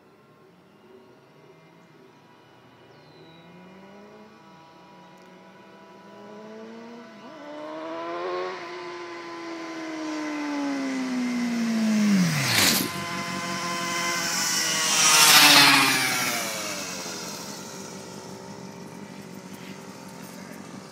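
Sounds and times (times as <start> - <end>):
sport motorcycle passing: 0.5 - 20.9
buzzy pocket bike passing: 11.3 - 20.9.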